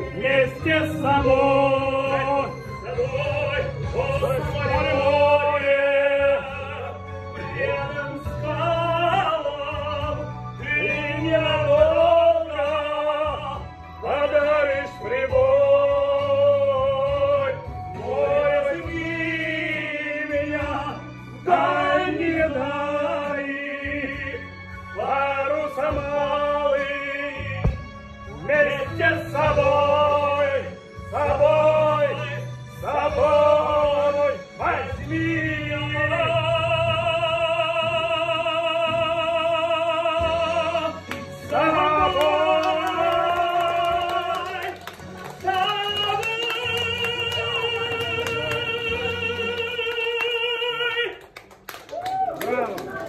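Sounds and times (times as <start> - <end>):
instrumental accompaniment: 0.0 - 36.4
man singing operatically: 0.0 - 51.3.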